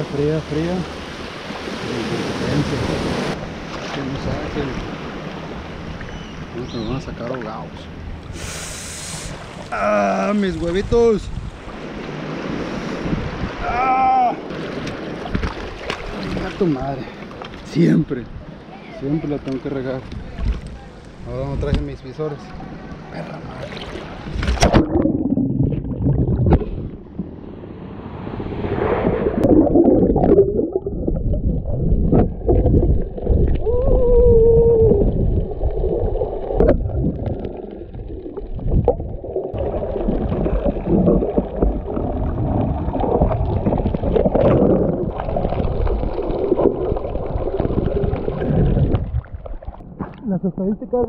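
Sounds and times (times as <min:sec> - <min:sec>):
water rushing and gurgling underwater: 0:10.6 - 0:13.6, 0:14.4 - 0:17.5, 0:23.5 - 0:50.8.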